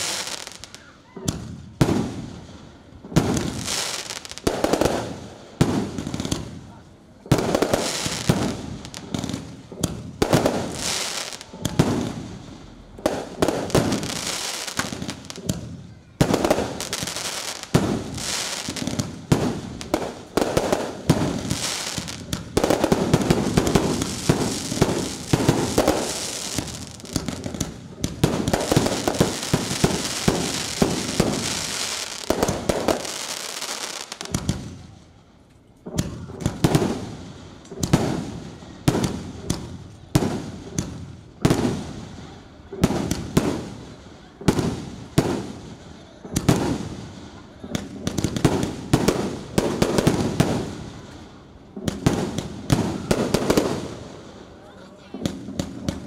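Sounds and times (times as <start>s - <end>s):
fireworks bangs and crackling: 0.0s - 56.0s.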